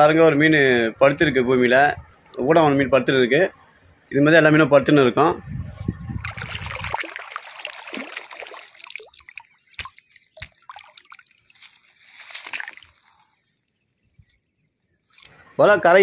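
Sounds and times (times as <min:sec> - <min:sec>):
river water splashing: 0:06.2 - 0:13.4.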